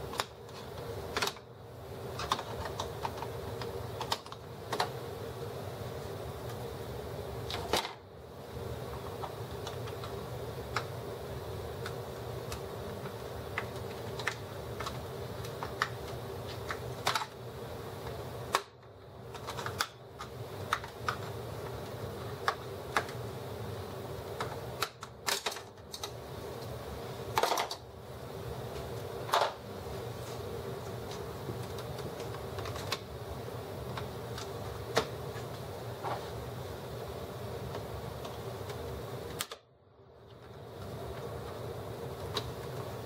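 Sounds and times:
steady low hum: 0.0s - 43.0s
plastic clicks and snaps: 37.7s - 39.6s.

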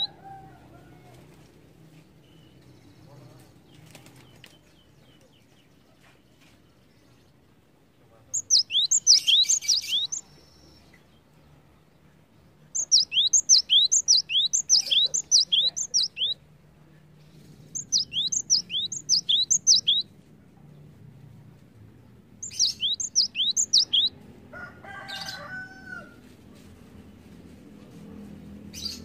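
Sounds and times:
tit singing ringing notes: 8.4s - 10.2s, 12.8s - 16.4s, 17.8s - 20.0s, 22.4s - 24.1s.

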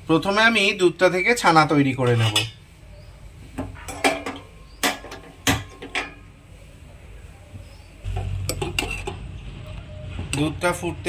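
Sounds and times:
metal pot and utensils clinking: 2.0s - 2.6s, 3.6s - 6.3s, 8.1s - 9.4s.

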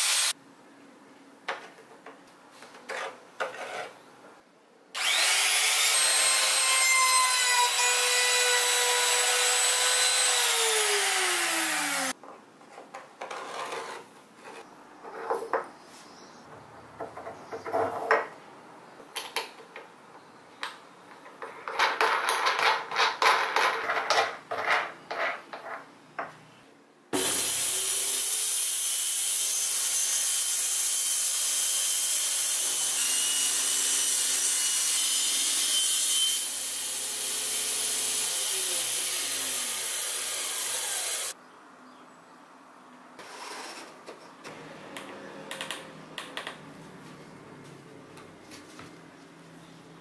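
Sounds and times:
circular saw running: 0.0s - 0.3s, 5.0s - 12.1s, 27.2s - 41.4s.

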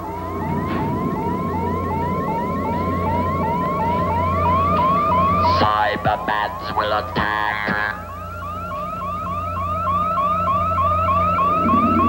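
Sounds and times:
steady low hum: 0.0s - 12.0s
short rising electronic tone: 11.1s - 12.0s.

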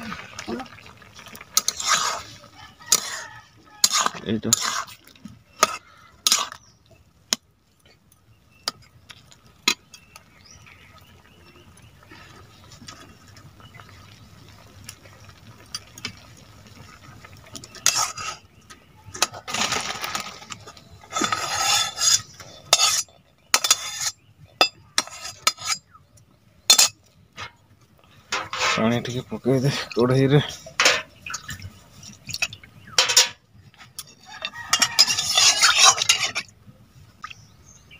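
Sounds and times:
metal spatula scraping a pan: 1.5s - 6.7s, 17.7s - 18.5s, 19.2s - 25.9s, 26.7s - 27.6s, 28.3s - 29.1s, 32.5s - 36.5s.

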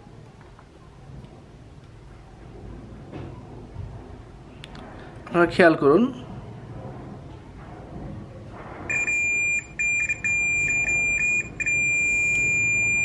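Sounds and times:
multimeter beeping: 8.9s - 13.0s.

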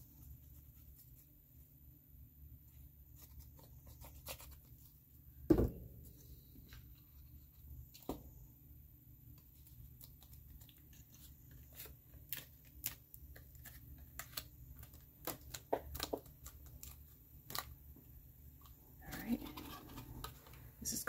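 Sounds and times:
steady low hum: 0.0s - 15.3s.

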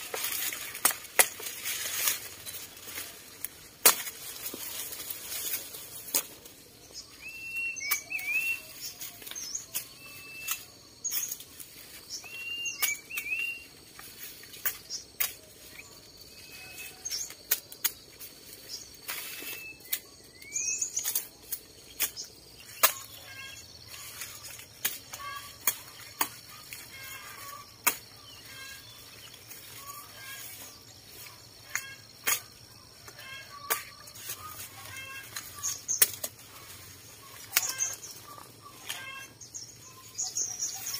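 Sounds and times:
dry corn leaves rustling: 0.0s - 40.9s
small birds chirping: 0.0s - 40.9s.

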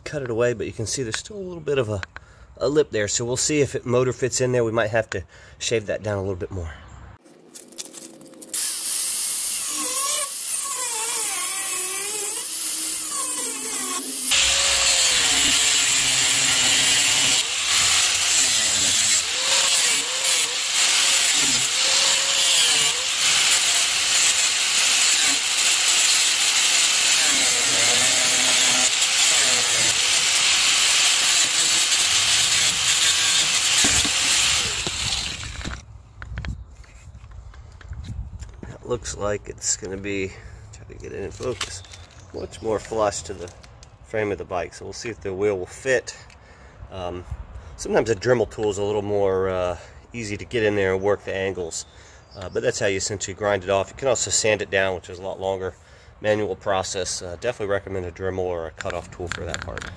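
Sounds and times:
angle grinder grinding metal: 7.8s - 35.8s.

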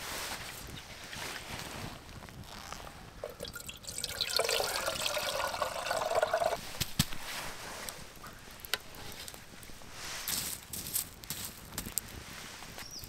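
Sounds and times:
water pouring into metal kettle: 3.2s - 6.6s.

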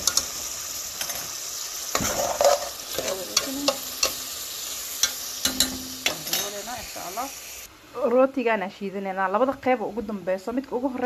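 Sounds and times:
chicken sizzling in hot oil: 0.0s - 11.0s
spoon scraping a metal pot: 2.0s - 4.2s.

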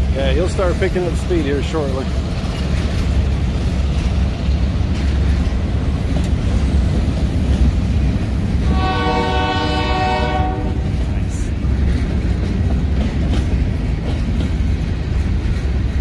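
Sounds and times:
freight train rumbling past: 0.0s - 16.0s
train horn blast: 8.6s - 11.0s.

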